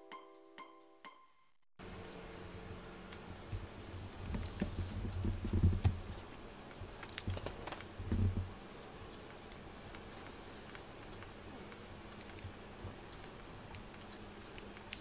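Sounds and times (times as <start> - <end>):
dull bumps of cats shifting: 3.5 - 6.2.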